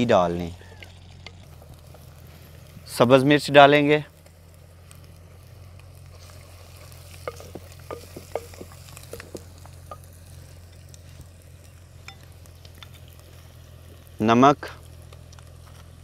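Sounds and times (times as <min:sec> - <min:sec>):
faint sizzle: 0:00.0 - 0:16.0
wooden spoon stirring: 0:06.2 - 0:10.0
spoon knocking clay pot: 0:07.2 - 0:10.1.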